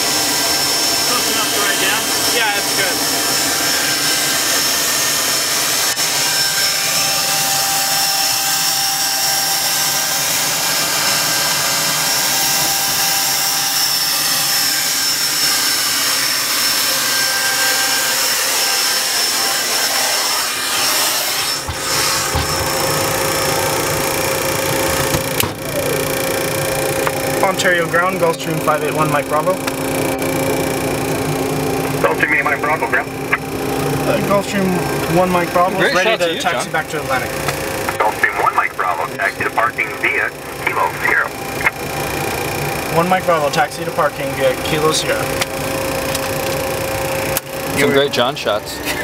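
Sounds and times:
jet engines idling rush: 0:21.6 - 0:49.0.

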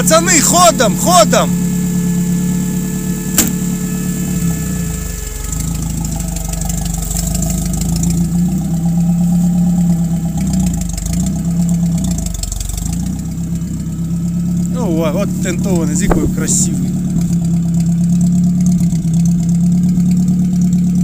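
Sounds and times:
engine running at low revs: 0:00.0 - 0:21.0
sharp knock: 0:03.3 - 0:03.6.

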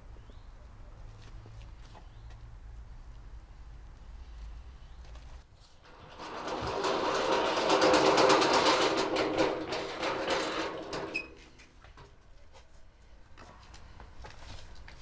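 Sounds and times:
small motor rattling: 0:05.8 - 0:11.6.

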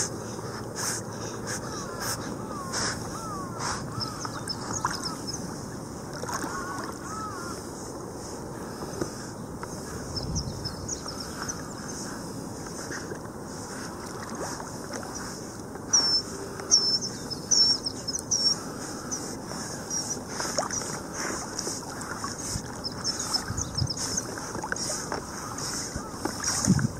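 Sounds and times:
water lapping: 0:00.0 - 0:26.9
bird chirping: 0:01.2 - 0:05.4, 0:15.9 - 0:19.3
wind on microphone: 0:02.4 - 0:15.2, 0:21.5 - 0:26.9.

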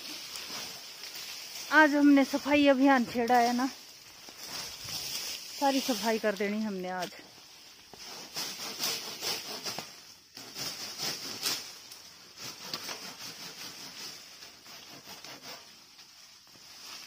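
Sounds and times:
steady high hiss: 0:00.0 - 0:12.4
branches rustling and crackling: 0:00.0 - 0:17.0
shears and saw scraping and clicking: 0:00.0 - 0:17.0.

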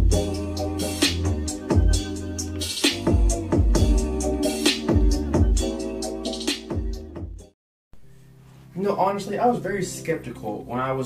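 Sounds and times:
electronic music: 0:00.0 - 0:07.5.

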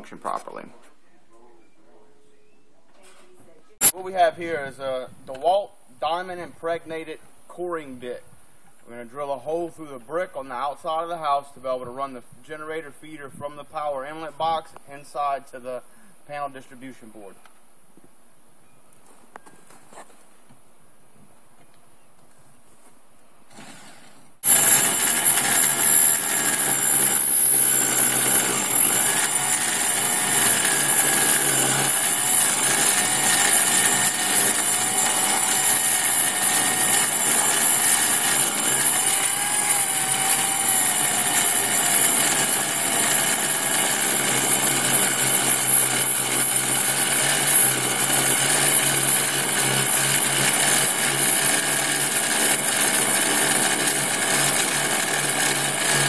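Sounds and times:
drill grinding through brick: 0:23.5 - 0:56.0.

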